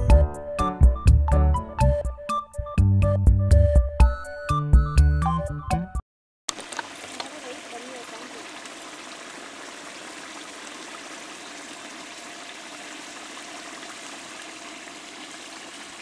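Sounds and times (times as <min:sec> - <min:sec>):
gravy boiling and bubbling: 0:06.5 - 0:16.0.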